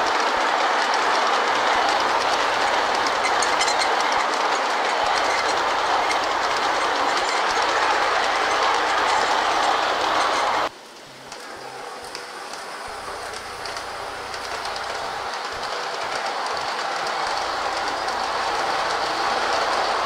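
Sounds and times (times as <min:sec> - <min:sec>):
model train wheels clicking: 0:00.0 - 0:20.0.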